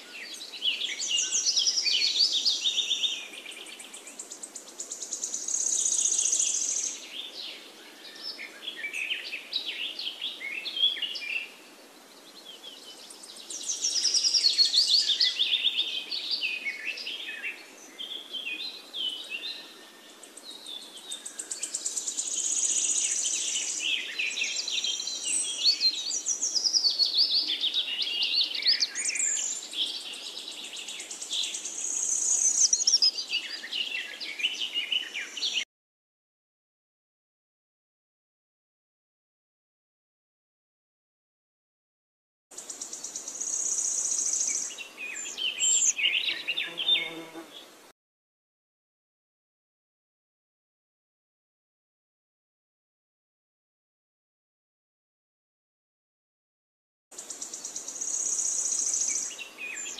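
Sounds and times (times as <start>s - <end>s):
birds chirping and trilling: 0.0s - 35.7s, 42.5s - 47.8s, 57.2s - 59.9s.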